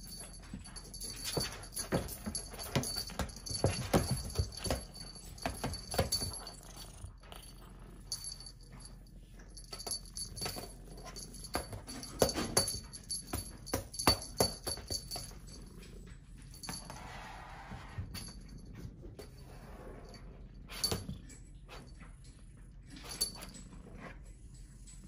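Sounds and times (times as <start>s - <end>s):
kitten paws tapping on floor: 0.0s - 7.5s, 8.2s - 15.6s.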